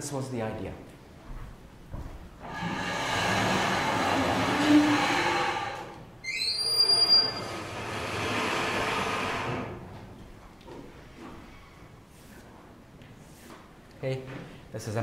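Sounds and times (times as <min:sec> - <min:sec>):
sliding chalkboard rolling rumble: 0:02.4 - 0:06.2, 0:06.8 - 0:10.0
high squeal: 0:02.5 - 0:07.9.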